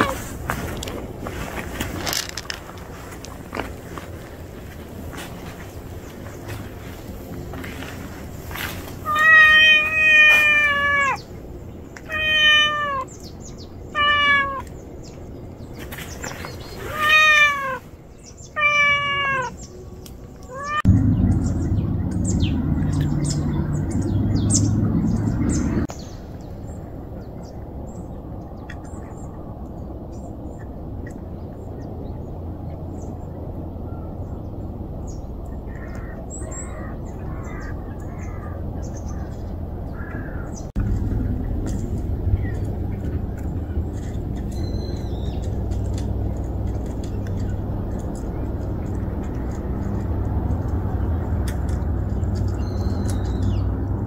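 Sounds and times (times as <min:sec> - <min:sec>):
cat meowing: 0:00.0 - 0:00.2, 0:09.0 - 0:11.3, 0:12.0 - 0:13.1, 0:13.9 - 0:14.7, 0:16.8 - 0:17.9, 0:18.6 - 0:19.6, 0:20.4 - 0:20.9
steady low hum: 0:19.5 - 0:54.0.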